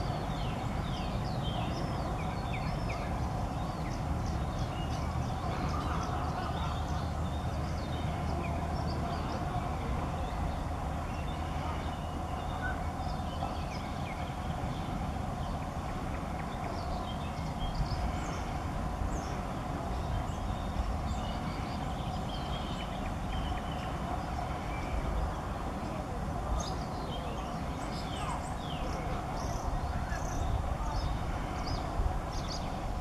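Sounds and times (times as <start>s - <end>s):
faint hum: 0.0s - 33.0s
songbirds chirping: 0.0s - 33.0s.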